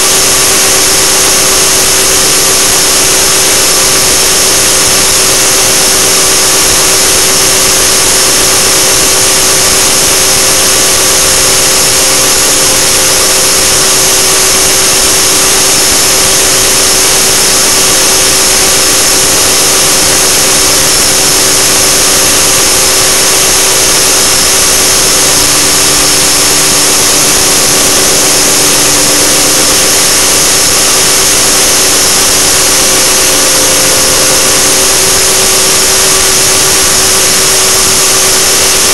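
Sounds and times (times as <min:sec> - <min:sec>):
helicopter rotor whine: 0:00.0 - 0:38.9
strong hiss: 0:00.0 - 0:38.9
lower tone: 0:08.4 - 0:38.8.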